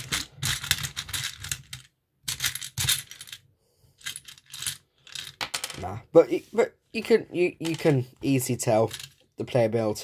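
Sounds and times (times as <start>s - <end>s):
plastic toy bricks clattering: 0.0s - 3.4s, 4.0s - 5.9s, 8.7s - 9.2s.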